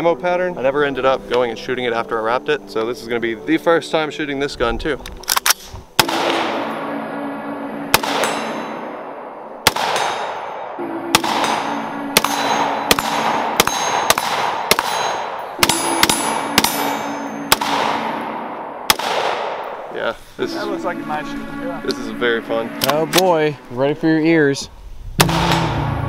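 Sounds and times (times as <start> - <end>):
rifle shots: 5.3 - 6.9, 7.9 - 19.9, 25.2 - 25.9.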